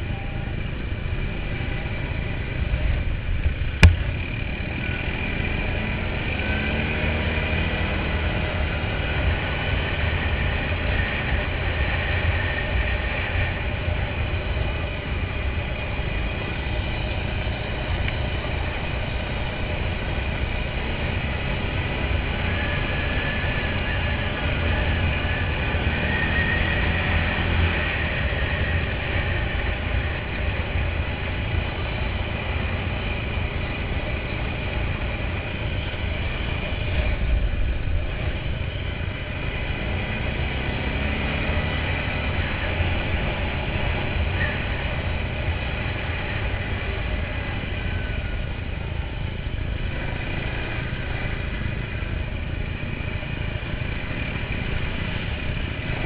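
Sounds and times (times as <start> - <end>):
quad bike engine rumbling: 0.0 - 56.0
loud thump: 3.8 - 4.2.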